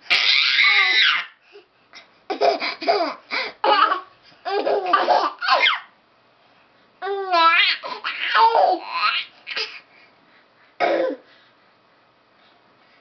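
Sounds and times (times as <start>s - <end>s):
baby squealing: 0.1s - 1.4s, 3.7s - 5.9s
babies laughing and babbling: 2.3s - 5.9s, 7.0s - 9.8s.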